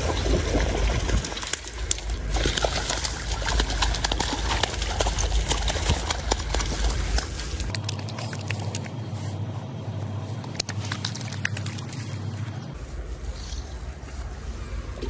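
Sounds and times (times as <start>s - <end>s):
running creek water: 0.0s - 8.5s
fish splashing in water: 0.0s - 9.0s, 10.5s - 12.8s
low rumble: 0.0s - 15.0s.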